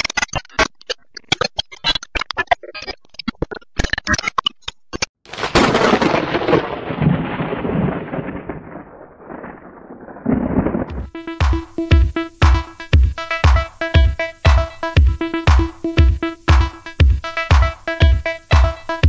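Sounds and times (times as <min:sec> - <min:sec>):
heavy rumbling boom: 0:06.8 - 0:11.1.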